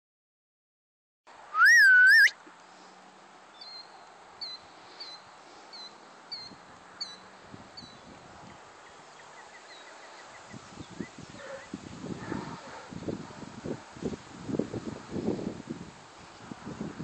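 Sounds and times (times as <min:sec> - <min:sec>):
bird chirping: 0:01.6 - 0:02.3
person whistling: 0:01.6 - 0:02.3.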